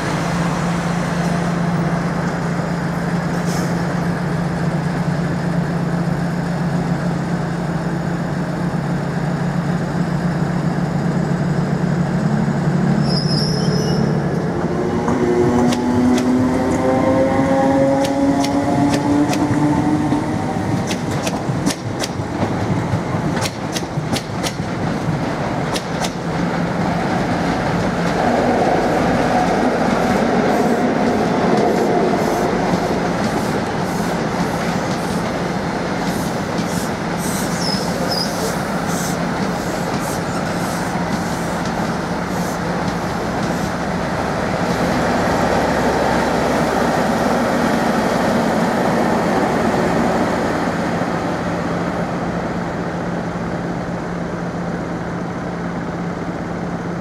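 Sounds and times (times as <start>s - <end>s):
train rumbling: 0.0s - 57.0s
high squeal: 13.0s - 14.2s.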